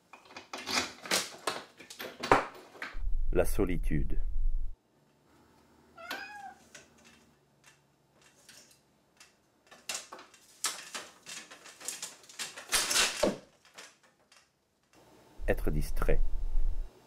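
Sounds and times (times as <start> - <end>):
cat meowing: 6.0 - 6.7
window blind slats rattling: 6.6 - 14.6.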